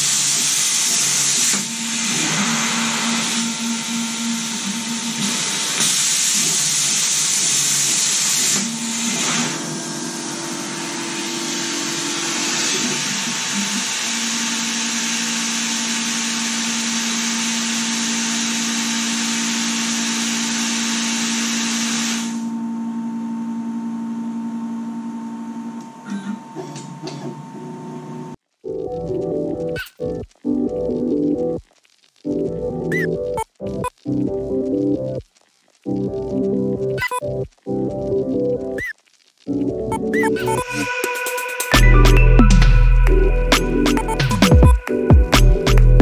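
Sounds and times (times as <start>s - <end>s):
plasma torch hissing: 0.0s - 22.4s.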